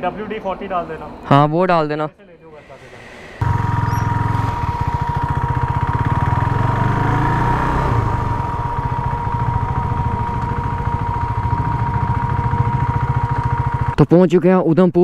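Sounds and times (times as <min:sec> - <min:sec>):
high-pitched whine: 0:02.5 - 0:14.0
motorcycle engine cruising: 0:02.7 - 0:14.0.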